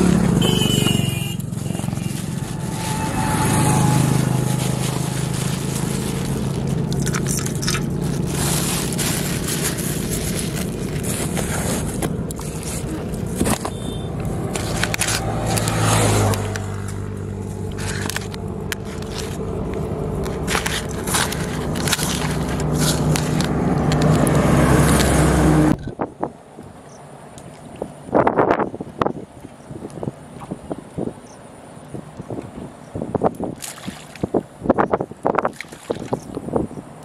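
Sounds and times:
hands crumbling bait in steel bowl: 0:03.8 - 0:10.9.

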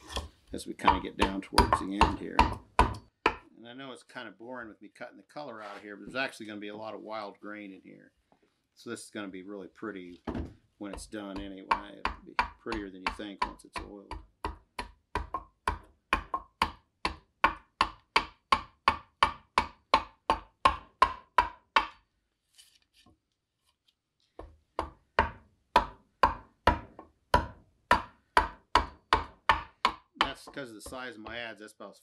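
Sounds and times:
adze chopping wood: 0:13.4 - 0:22.0, 0:24.8 - 0:31.0.

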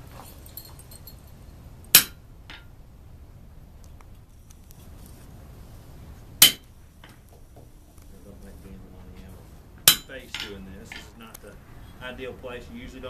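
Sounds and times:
hammer striking chisel clang: 0:02.0 - 0:02.7, 0:06.4 - 0:06.7, 0:09.9 - 0:11.2.

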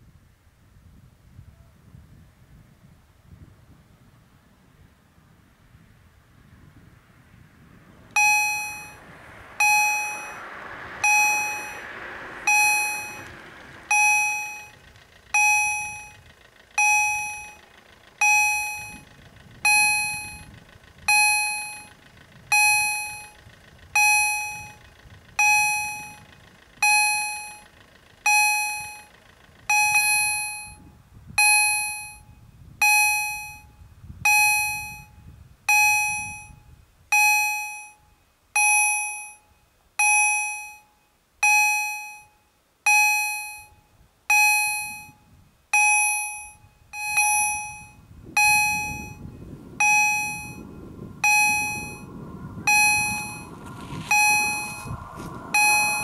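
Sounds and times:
level crossing warning bell: 0:08.2 - 0:09.0, 0:09.6 - 0:10.4, 0:11.0 - 0:13.3, 0:13.9 - 0:16.2, 0:16.8 - 0:20.5, 0:21.1 - 0:33.7, 0:34.3 - 0:56.0.

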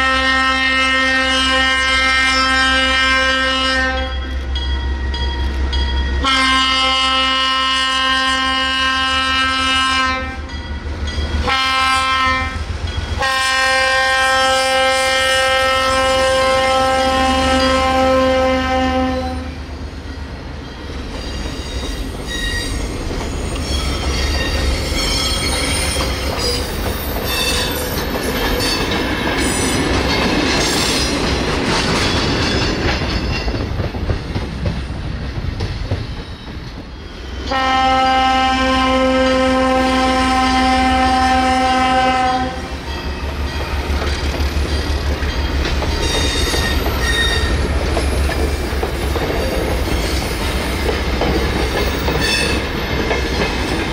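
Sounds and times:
diesel locomotive horn: 0:00.0 - 0:04.6, 0:06.2 - 0:10.5, 0:11.4 - 0:19.7, 0:37.4 - 0:43.4, 0:51.7 - 0:52.8
train wheels squealing: 0:20.1 - 0:31.2, 0:36.0 - 0:37.6, 0:42.8 - 0:51.0, 0:51.7 - 0:53.8
wheels clacking over rail joints: 0:21.0 - 0:37.0, 0:43.2 - 0:53.9.

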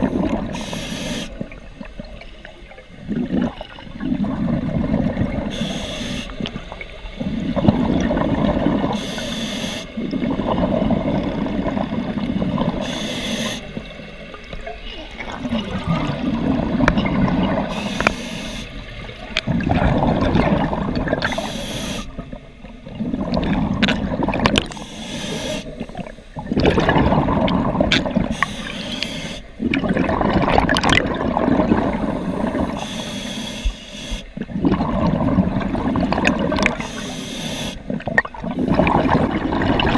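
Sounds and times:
exhaled bubbles burbling: 0:00.0 - 0:00.6, 0:01.3 - 0:05.7, 0:06.3 - 0:09.0, 0:10.0 - 0:13.0, 0:13.6 - 0:18.1, 0:18.8 - 0:21.5, 0:22.1 - 0:24.8, 0:25.6 - 0:28.7, 0:29.6 - 0:32.8, 0:34.4 - 0:37.0, 0:37.8 - 0:39.9
regulator inhale hiss: 0:00.0 - 0:01.4, 0:05.5 - 0:06.4, 0:08.9 - 0:10.0, 0:12.8 - 0:13.8, 0:17.7 - 0:18.9, 0:21.2 - 0:22.2, 0:24.7 - 0:26.4, 0:28.3 - 0:29.6, 0:31.9 - 0:34.4, 0:36.8 - 0:37.9.

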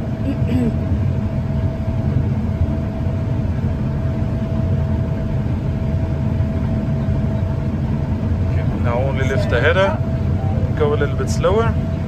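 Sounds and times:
combine engine and machinery rumble: 0:00.0 - 0:12.0
thin steady whine: 0:00.0 - 0:12.0.

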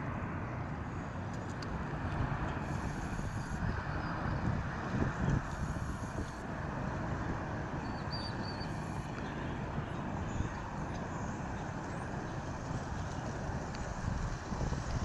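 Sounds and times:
distant engines rumbling: 0:00.0 - 0:15.0
faint high chirp: 0:07.8 - 0:08.8.

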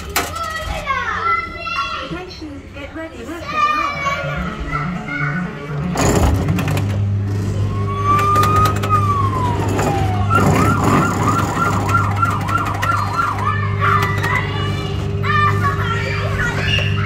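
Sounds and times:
electronic siren wail: 0:07.6 - 0:14.1
fast warbling siren: 0:07.7 - 0:14.0.

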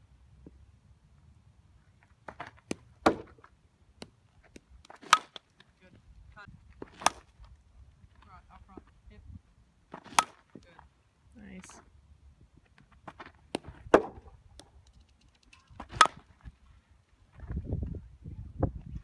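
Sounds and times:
bat hitting softballs: 0:02.2 - 0:05.7, 0:06.8 - 0:07.4, 0:09.9 - 0:10.6, 0:13.1 - 0:14.8, 0:15.5 - 0:16.4.

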